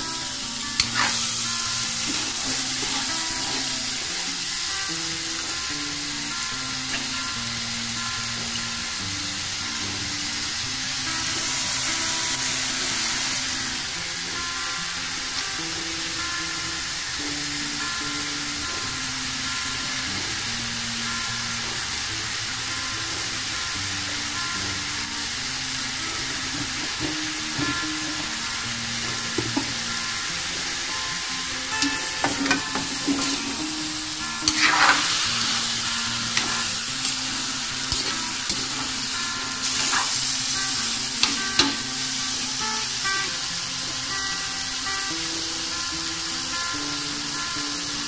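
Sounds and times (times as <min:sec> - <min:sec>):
food sizzling in a wok: 0:00.0 - 0:48.0
spatula scraping metal pan: 0:00.8 - 0:01.4, 0:31.8 - 0:33.8, 0:34.4 - 0:37.3, 0:37.9 - 0:38.9.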